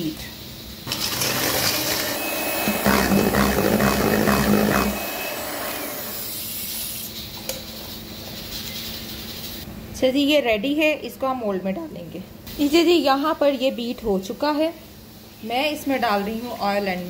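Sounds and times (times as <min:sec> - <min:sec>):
electric hand mixer whipping: 0:00.9 - 0:06.4.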